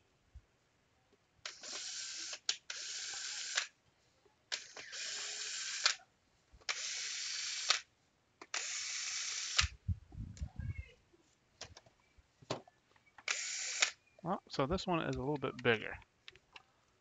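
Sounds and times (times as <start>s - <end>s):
cordless drill whirring: 1.5s - 3.7s, 4.6s - 6.0s, 6.7s - 7.8s, 8.5s - 9.7s, 13.3s - 14.0s.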